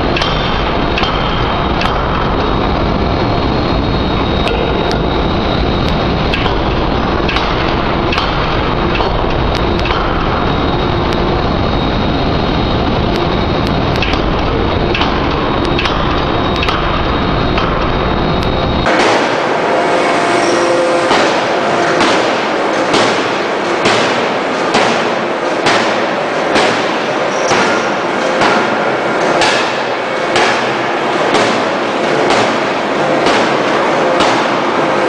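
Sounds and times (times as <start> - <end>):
forging hammer banging on metal: 0.0 - 2.5, 6.3 - 10.3, 21.1 - 34.6.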